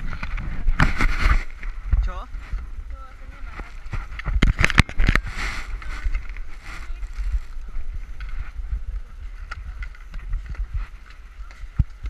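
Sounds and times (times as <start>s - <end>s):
wind buffeting microphone: 0.0s - 12.0s
faint voices: 5.6s - 12.0s.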